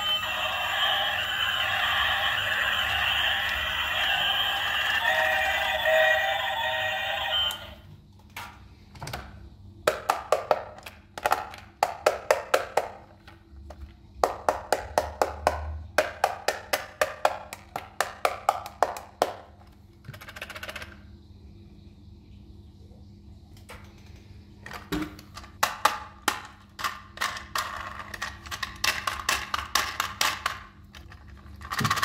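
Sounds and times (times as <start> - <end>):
toy train electronic sound: 0.0 - 7.9.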